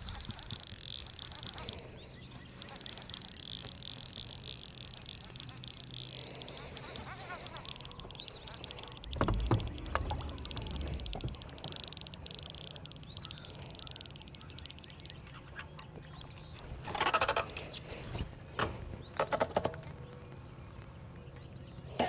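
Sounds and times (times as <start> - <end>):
small birds chirping: 0.0 - 22.0
ducks quacking: 4.9 - 11.9.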